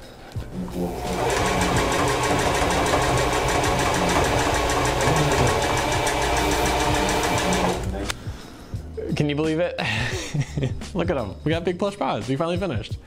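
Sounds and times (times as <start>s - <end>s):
sewing machine stitching: 0.7s - 8.0s.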